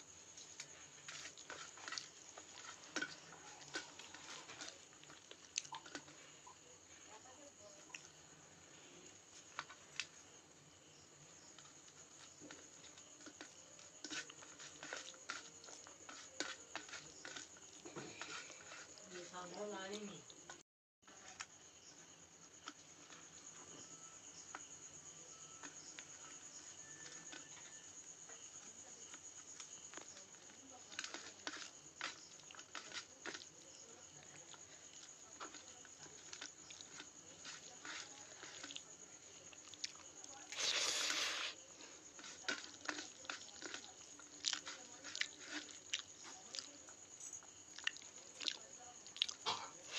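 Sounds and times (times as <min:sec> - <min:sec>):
cricket trill: 0:00.0 - 0:49.9
hand mixing food in steel bowl: 0:00.4 - 0:08.0, 0:11.6 - 0:20.6, 0:29.9 - 0:46.9.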